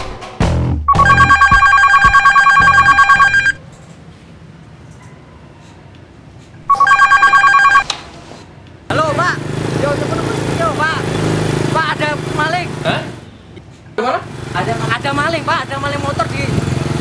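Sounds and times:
telephone ringing: 0:00.9 - 0:03.6, 0:06.7 - 0:07.9.

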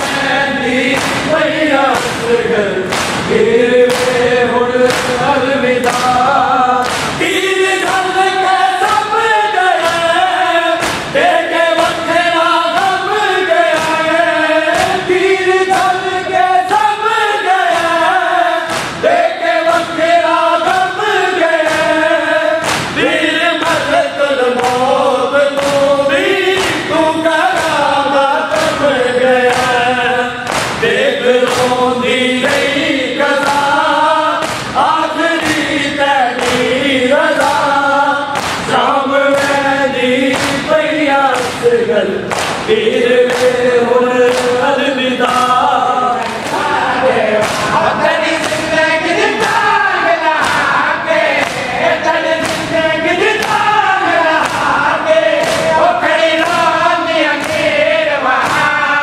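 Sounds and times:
crowd of men singing: 0:00.0 - 0:59.0
man reciting through microphone: 0:00.0 - 0:59.0
hands striking chests: 0:00.9 - 0:04.3, 0:04.9 - 0:08.1, 0:10.8 - 0:16.1, 0:17.7 - 0:20.9, 0:22.6 - 0:23.9, 0:24.6 - 0:28.8, 0:30.4 - 0:31.8, 0:34.4 - 0:36.8, 0:38.3 - 0:38.7, 0:42.3 - 0:44.6, 0:46.2 - 0:49.7, 0:50.3 - 0:53.7, 0:54.3 - 0:58.8.

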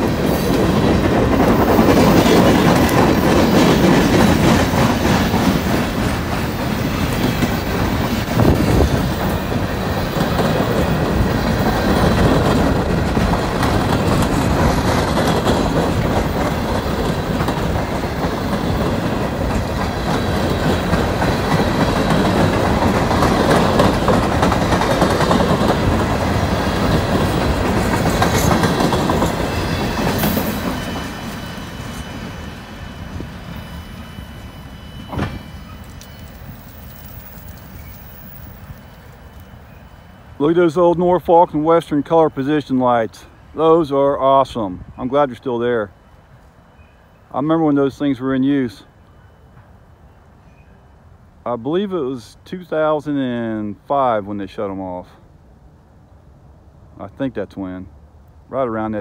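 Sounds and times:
wheels clicking over rail joints: 0:00.0 - 0:31.5
freight train rolling past: 0:00.0 - 0:59.0.

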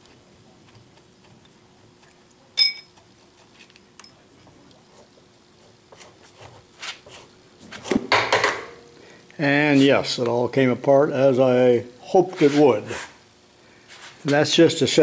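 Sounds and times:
ringing metal clink: 0:02.6 - 0:02.9.

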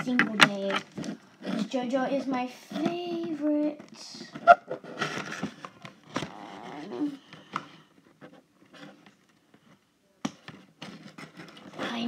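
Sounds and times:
plastic and cardboard rustling: 0:00.0 - 0:12.0.

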